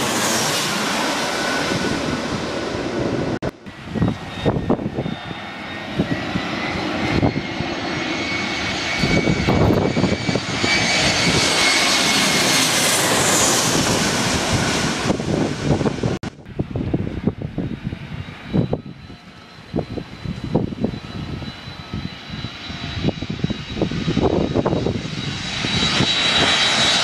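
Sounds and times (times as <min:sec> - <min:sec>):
jet engines whining and rumbling: 0:00.0 - 0:27.0.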